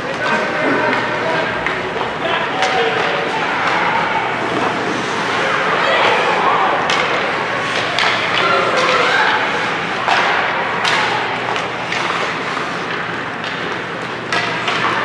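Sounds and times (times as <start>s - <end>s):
indistinct crowd voices: 0.0s - 15.0s
sharp knocks of hockey sticks and puck: 6.8s - 9.4s, 10.0s - 15.0s.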